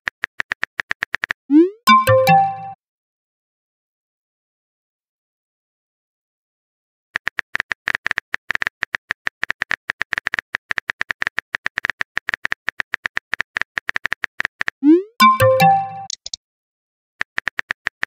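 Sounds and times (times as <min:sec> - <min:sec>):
phone keyboard typing clicks: 0:07.2 - 0:16.4.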